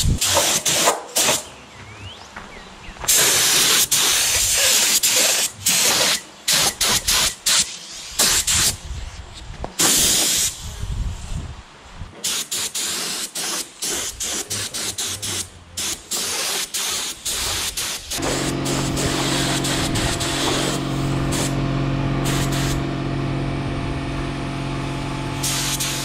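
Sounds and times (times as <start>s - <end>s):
spray paint hissing: 0.0s - 1.4s, 3.1s - 8.8s, 9.8s - 10.7s, 12.2s - 21.6s, 22.2s - 22.8s, 25.4s - 26.0s.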